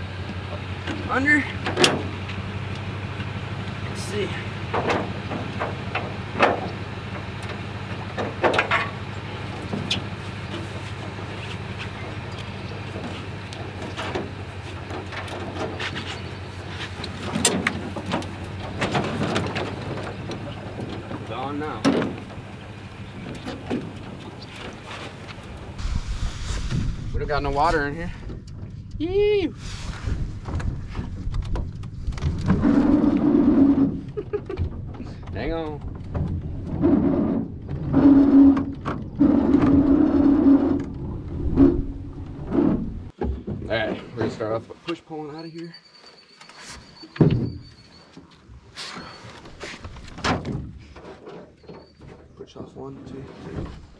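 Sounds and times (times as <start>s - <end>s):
steady low hum: 0.0s - 43.1s.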